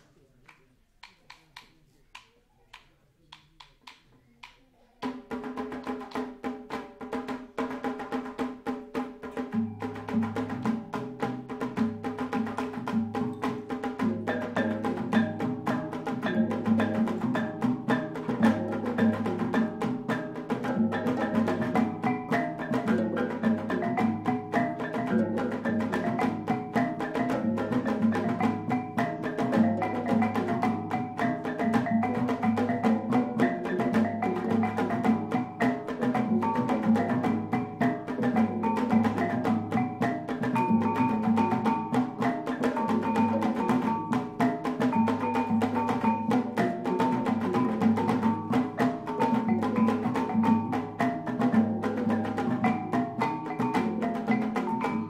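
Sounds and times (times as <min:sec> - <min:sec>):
drum: 0:05.0 - 0:55.0.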